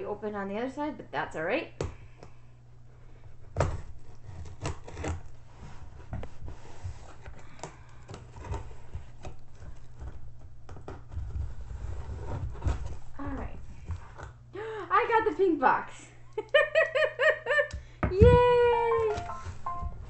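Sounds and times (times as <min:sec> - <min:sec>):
knife scraping along packing tape: 0:03.6 - 0:05.4.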